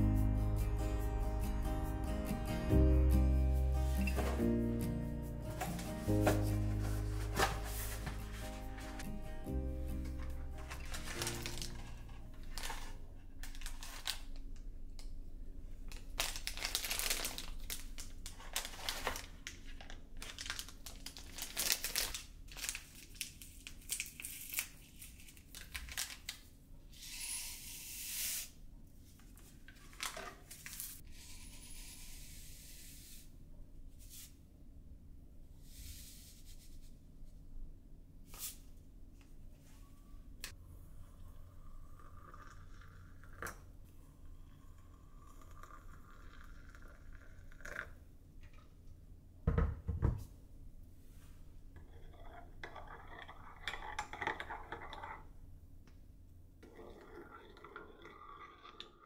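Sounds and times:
paper rustling and tearing: 5.5 - 9.0, 10.1 - 14.3, 16.0 - 26.4.

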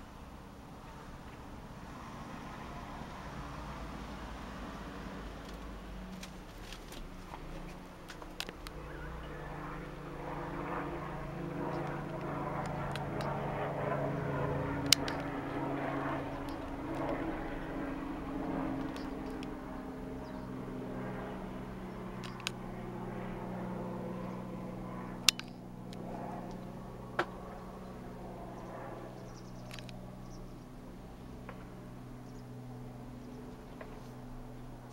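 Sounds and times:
helicopter rotor and engine drone: 0.0 - 34.9
sharp clicks: 11.7 - 13.4, 14.8 - 15.4, 18.8 - 19.6, 22.2 - 22.6, 25.3 - 27.3, 29.6 - 30.0.

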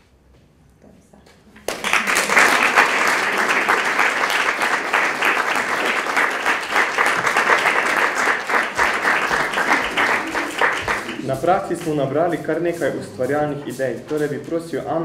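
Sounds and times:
audience clapping: 1.6 - 13.3.

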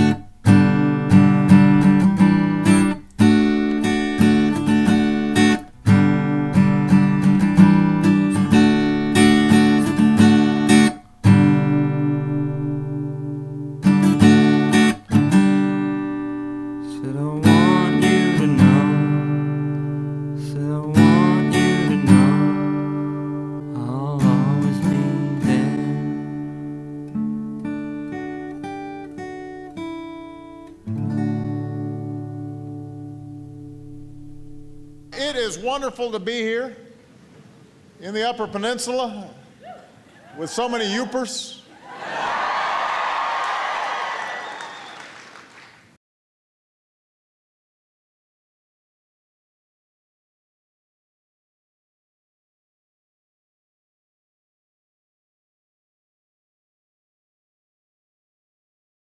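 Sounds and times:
acoustic guitar strumming: 0.0 - 36.2.

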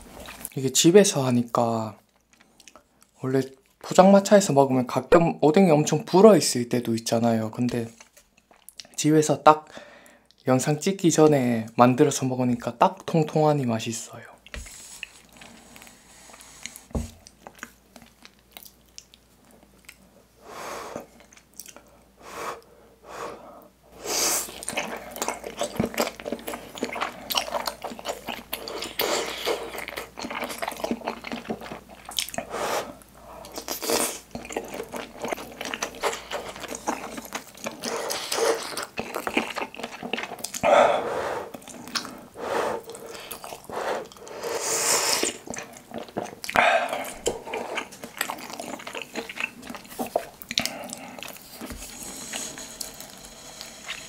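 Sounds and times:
chewing with wet mouth sounds: 14.4 - 20.2, 20.9 - 22.0, 24.4 - 44.4, 45.0 - 54.0.

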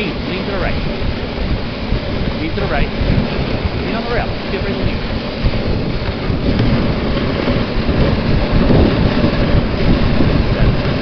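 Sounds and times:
sled runners scraping on snow: 0.0 - 11.0.

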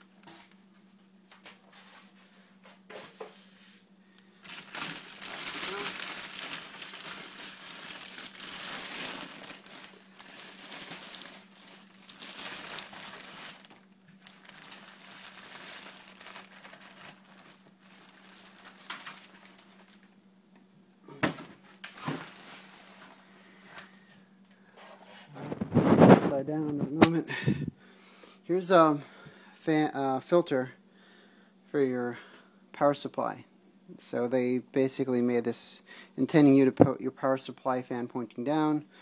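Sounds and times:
plastic bag crinkling: 4.4 - 20.2, 21.8 - 23.3.

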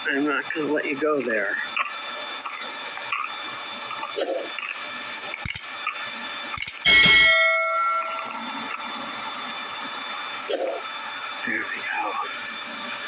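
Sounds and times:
sharp clicks: 4.6 - 6.8
bell ding: 6.8 - 8.6.

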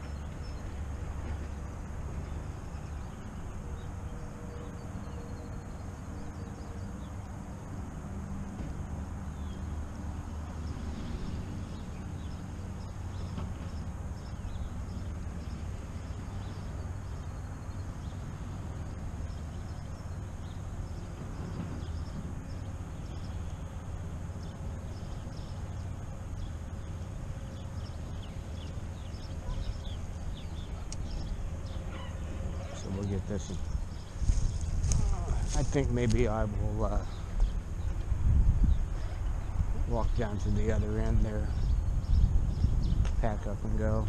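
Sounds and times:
wind on microphone: 29.0 - 44.0
chirping animal calls: 29.1 - 34.4.

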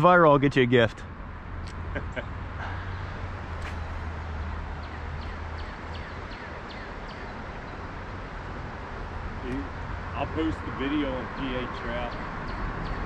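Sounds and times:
falling bird chirps: 3.5 - 7.3.

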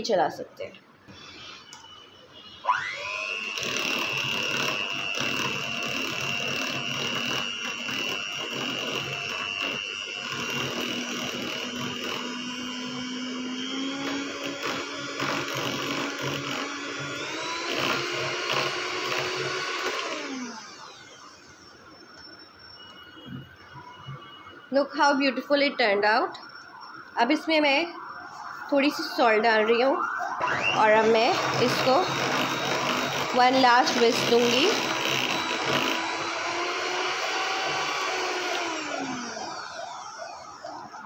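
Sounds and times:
electric hand mixer whining: 2.6 - 23.4, 30.0 - 41.0.

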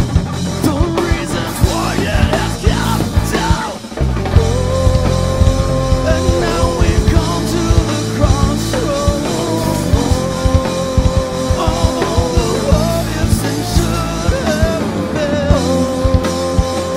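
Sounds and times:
live rock band playing: 0.0 - 16.9
man singing: 0.5 - 16.9.

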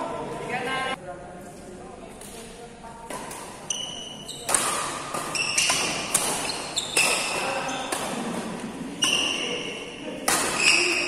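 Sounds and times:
rackets hitting shuttlecock: 3.0 - 11.0
shoes squeaking on floor: 3.6 - 8.0, 8.9 - 11.0.

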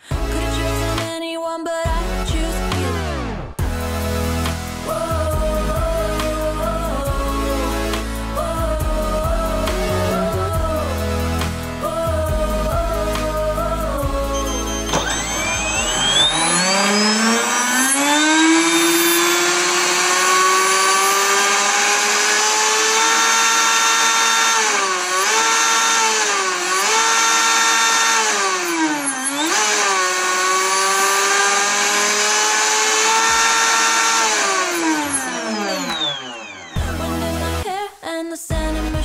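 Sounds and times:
high electric motor whine: 12.5 - 37.1.

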